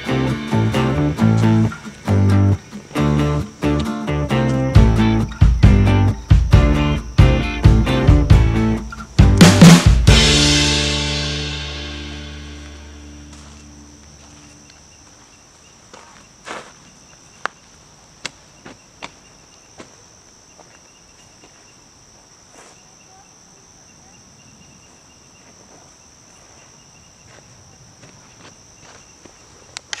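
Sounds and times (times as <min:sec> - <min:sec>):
music: 0:00.0 - 0:14.0
insects droning: 0:00.0 - 0:30.0.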